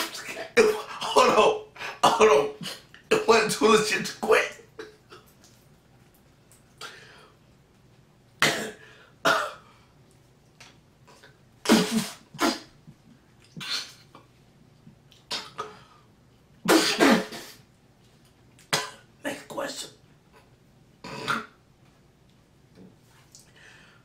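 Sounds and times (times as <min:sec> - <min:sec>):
man coughing: 0:16.7 - 0:17.5.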